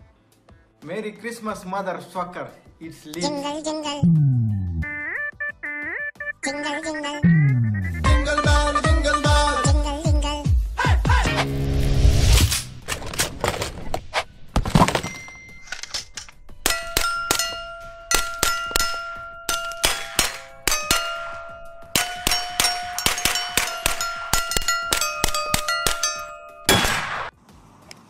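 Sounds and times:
bell-like steel target rings: 0:16.7 - 0:26.8
rifle shots: 0:26.7 - 0:27.3.

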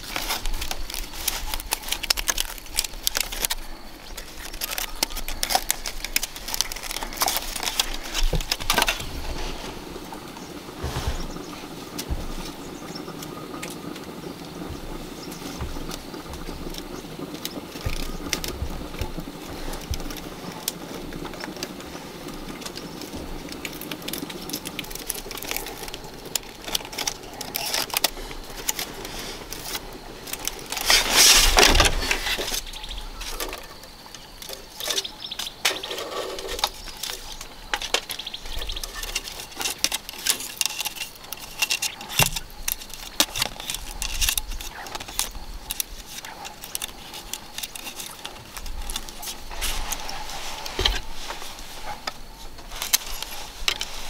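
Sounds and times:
bamboo strips clicking and rustling: 0:00.0 - 0:54.0.

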